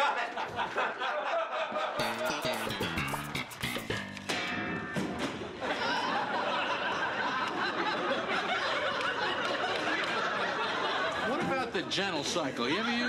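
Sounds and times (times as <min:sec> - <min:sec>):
studio audience laughing: 0:00.0 - 0:02.6, 0:05.6 - 0:11.4.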